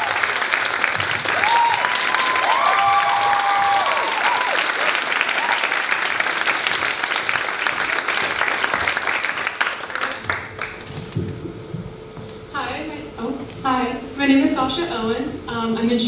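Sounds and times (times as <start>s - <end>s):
high held calls from crowd: 0.0s - 10.6s
audience applauding: 0.0s - 11.2s.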